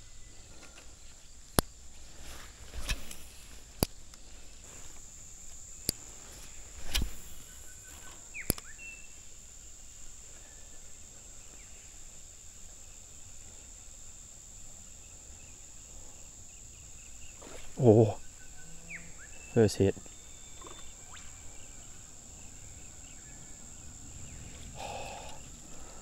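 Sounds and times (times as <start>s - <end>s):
high-pitched insect chorus: 0.0s - 26.0s
sharp clicks: 6.8s - 8.8s
faint bird call: 17.3s - 26.0s.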